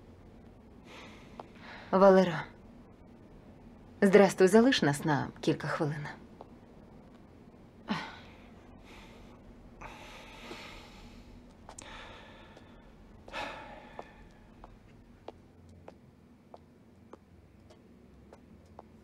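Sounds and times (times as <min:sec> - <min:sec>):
person sighing breaths: 0:07.9 - 0:14.4.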